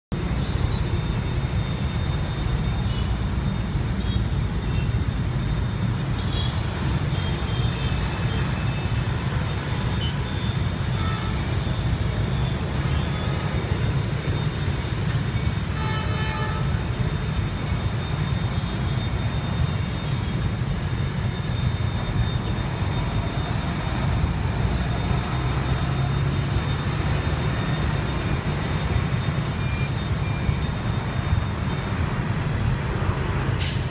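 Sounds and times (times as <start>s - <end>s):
traffic rumble: 0.1s - 33.9s
faint high whine: 0.2s - 33.9s.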